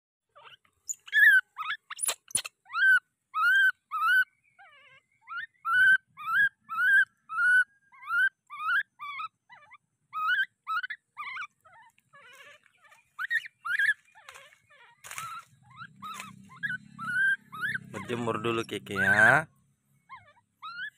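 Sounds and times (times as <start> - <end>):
baby macaque calling: 0.4 - 19.5, 20.1 - 20.9.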